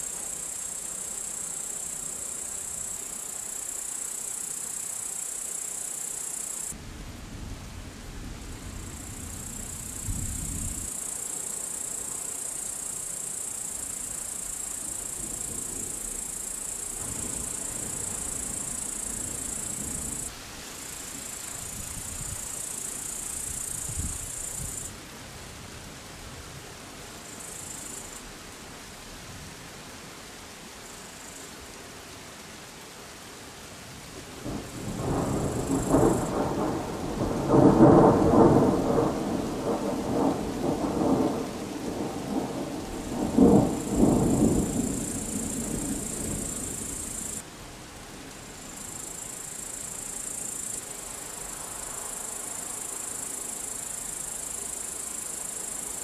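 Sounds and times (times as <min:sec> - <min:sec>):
crickets trilling: 0:00.0 - 0:06.8, 0:08.4 - 0:25.0, 0:27.1 - 0:28.4, 0:30.7 - 0:31.8, 0:34.4 - 0:56.0
distant thunder rumbling: 0:34.4 - 0:47.4.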